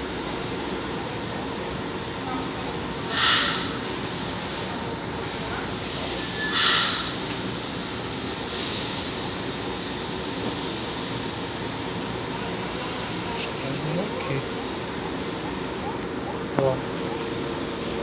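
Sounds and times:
train equipment humming: 0.0 - 18.0
air hiss bursts: 3.1 - 3.9, 5.8 - 12.1.

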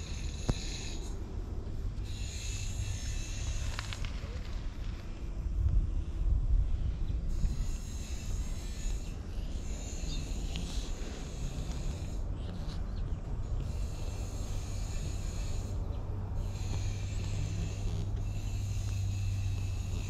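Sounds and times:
cat purring: 7.3 - 20.0.

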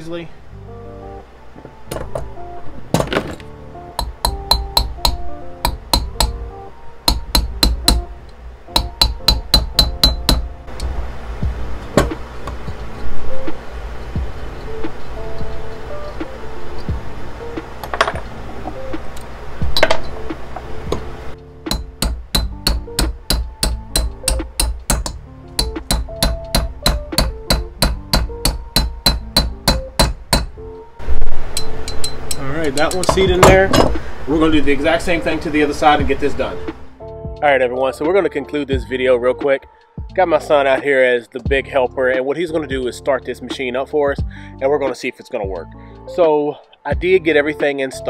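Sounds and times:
hammer tapping metal: 3.9 - 11.0, 11.8 - 13.0, 21.7 - 30.6, 31.3 - 34.0
loud metal knock: 4.0 - 6.4, 7.1 - 8.1, 8.8 - 10.5, 12.0 - 12.2, 21.7 - 30.6, 33.0 - 34.0
loud steady noise: 7.0 - 32.4.

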